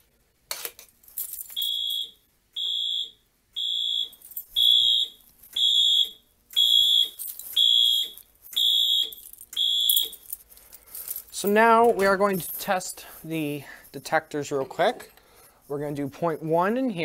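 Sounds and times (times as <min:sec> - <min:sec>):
fire alarm short high beeps: 0:01.6 - 0:10.2.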